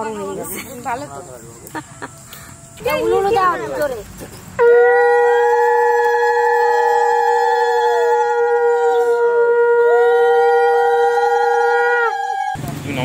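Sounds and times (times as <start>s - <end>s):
conch shells blowing: 4.6s - 12.6s.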